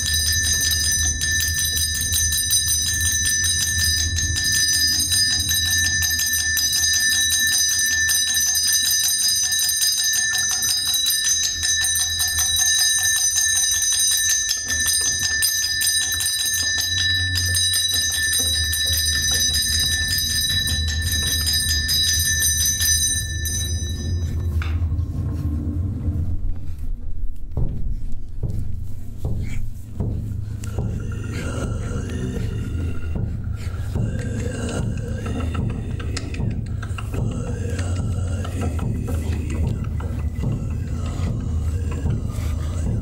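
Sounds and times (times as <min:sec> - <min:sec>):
bell ringing rapidly: 0:00.0 - 0:24.6
low rumble: 0:23.5 - 0:28.4, 0:30.4 - 0:43.0.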